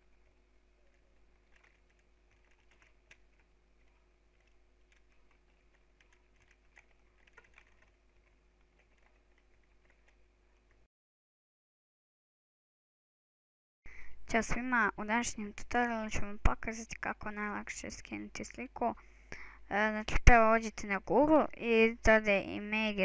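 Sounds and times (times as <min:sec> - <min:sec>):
low steady hum: 0:00.0 - 0:10.9
keyboard typing: 0:00.8 - 0:10.8.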